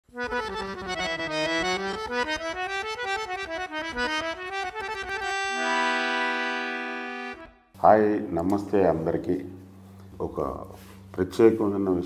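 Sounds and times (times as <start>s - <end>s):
accordion melody: 0.1s - 7.8s.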